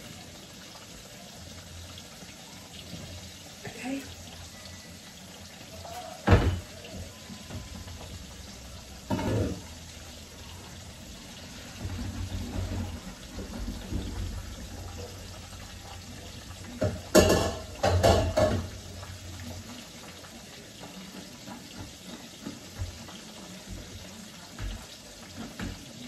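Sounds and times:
water splashing in a sink: 0:00.0 - 0:26.0
colander clatter: 0:09.0 - 0:09.8, 0:11.6 - 0:16.0, 0:16.6 - 0:19.0.

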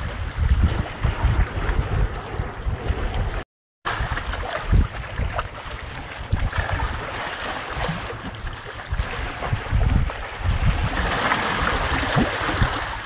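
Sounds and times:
wind buffeting microphone: 0:00.0 - 0:13.0
stream water running: 0:03.9 - 0:13.0.

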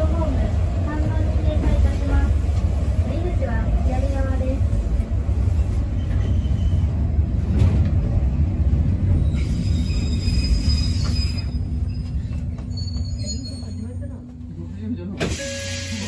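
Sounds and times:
train wheels rumbling: 0:00.0 - 0:16.0
faint high squeal: 0:09.2 - 0:14.0.

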